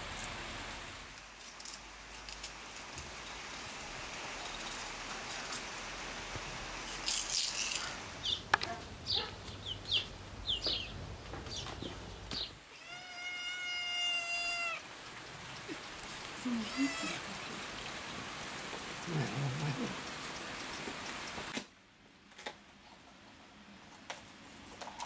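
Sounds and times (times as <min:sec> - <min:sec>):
cat meowing: 0:12.6 - 0:14.8, 0:16.5 - 0:17.3
cat chirping: 0:12.7 - 0:14.8.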